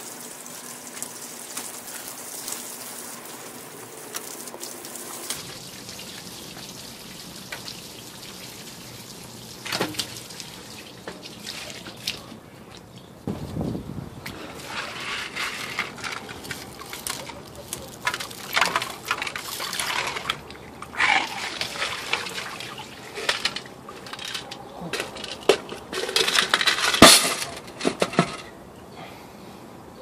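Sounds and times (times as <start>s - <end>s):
water pouring out: 0.0s - 12.3s, 14.6s - 25.4s
water sloshing in a tin can: 4.1s - 12.9s, 14.3s - 28.4s
metal shot clattering on concrete: 23.3s - 28.5s.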